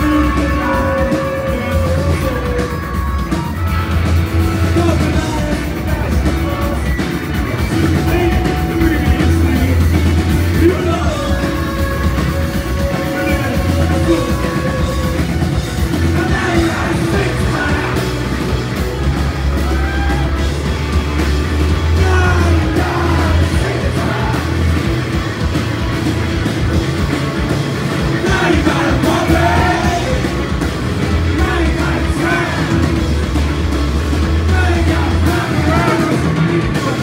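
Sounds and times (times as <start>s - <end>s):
man singing and shouting: 0.0s - 3.6s, 4.4s - 18.5s, 21.8s - 24.8s, 28.2s - 30.6s, 31.2s - 33.0s, 34.3s - 37.0s
live rock band playing: 0.0s - 37.0s.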